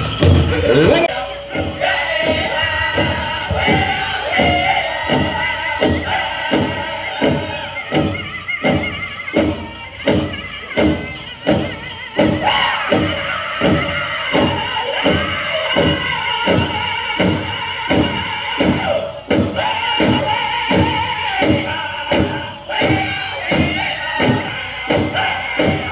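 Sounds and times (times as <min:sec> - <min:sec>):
big drum steady beat: 0:00.0 - 0:25.9
men singing in unison: 0:00.4 - 0:08.8, 0:12.4 - 0:25.9
high lead voice: 0:00.5 - 0:01.2.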